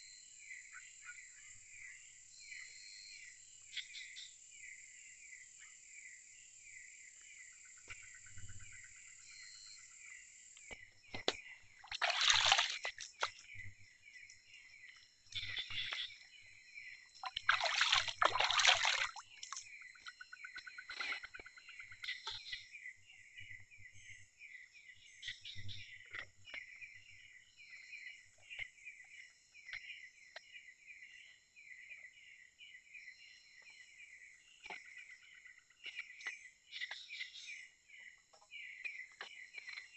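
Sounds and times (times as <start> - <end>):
insects chirping: 6.0 - 23.8
water splashing: 11.8 - 13.5, 17.2 - 19.6.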